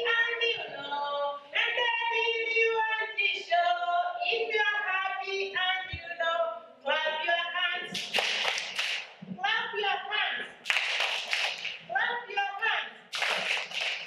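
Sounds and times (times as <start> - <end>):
hand clapping: 7.9 - 9.3, 10.6 - 11.9, 13.1 - 14.0.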